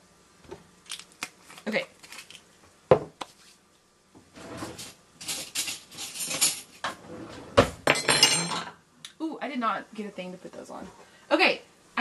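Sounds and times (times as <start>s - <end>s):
clattering and rustling of kitchen items: 0.4s - 3.6s, 4.2s - 8.8s
item knocking on countertop: 2.9s - 3.2s.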